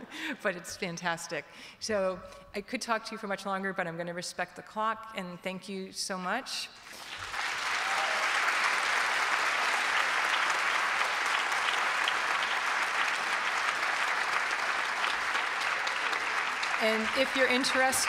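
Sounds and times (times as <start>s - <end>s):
audience applauding: 6.9s - 18.0s.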